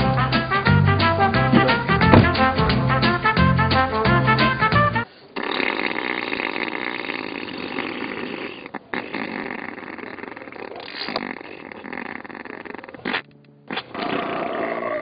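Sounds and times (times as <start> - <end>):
raspy fart: 0.6 - 2.9, 5.4 - 15.0.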